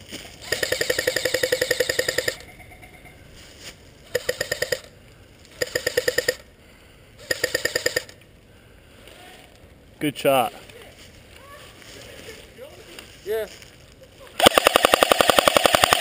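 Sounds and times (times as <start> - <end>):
airsoft rifle firing bursts: 0.4 - 2.4, 4.1 - 4.9, 5.6 - 6.4, 7.2 - 8.2, 14.4 - 16.0.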